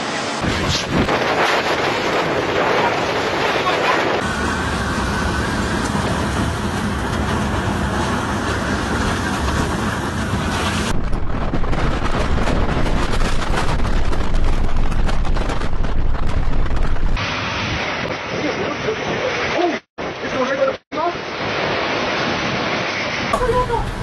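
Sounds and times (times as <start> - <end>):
crackling wind buffets: 0.0 - 24.0
wind blasting over microphone: 0.0 - 24.0.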